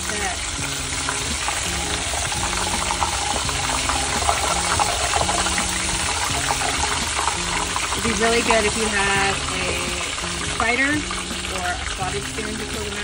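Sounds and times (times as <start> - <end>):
food deep-frying in hot oil: 0.0 - 13.0.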